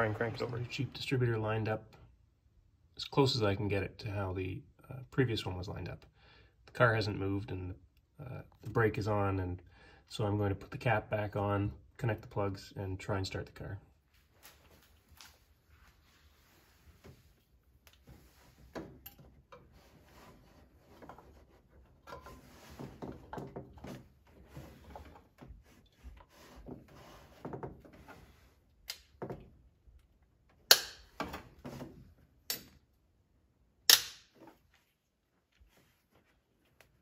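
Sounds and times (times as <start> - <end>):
rustling handling noise: 14.0 - 28.8, 34.4 - 37.0.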